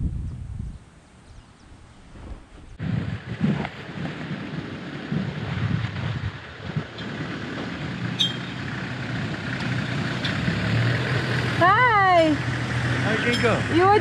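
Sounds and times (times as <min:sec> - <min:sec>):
wind noise on microphone: 0:00.0 - 0:08.6
motorcycle engine running: 0:02.8 - 0:14.0.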